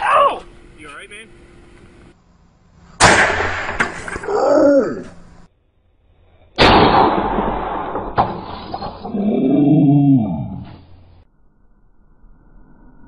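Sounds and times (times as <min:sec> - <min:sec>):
man yelling: 0:00.0 - 0:00.5
loud pop and air rush: 0:03.0 - 0:04.3, 0:06.6 - 0:09.1.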